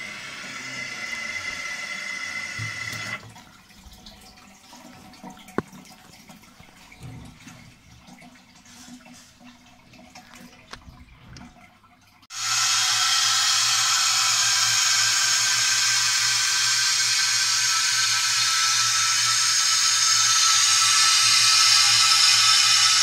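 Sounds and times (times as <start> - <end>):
fill valve hissing: 0.0 - 3.2, 12.3 - 23.0
water trickling in cistern: 0.1 - 12.3.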